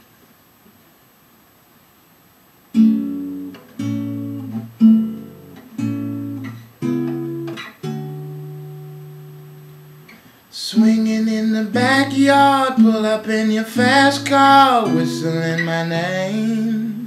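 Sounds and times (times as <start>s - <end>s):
acoustic guitar slow chords: 2.7s - 17.0s.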